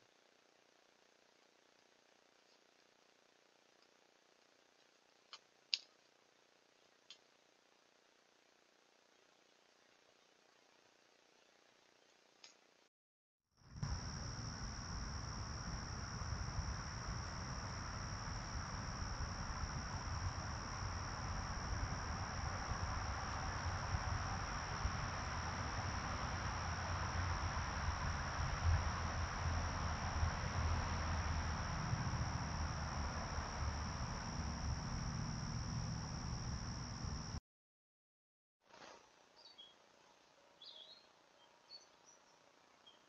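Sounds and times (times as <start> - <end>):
background hiss: 13.6 - 37.4
crickets chirping: 13.6 - 37.4.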